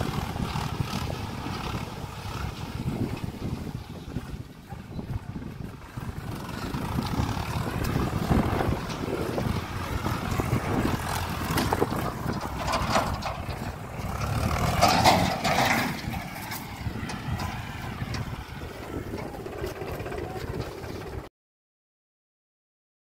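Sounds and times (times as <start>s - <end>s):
vehicle engine rumble: 0.0s - 21.3s
rushing motion noise: 5.6s - 21.3s.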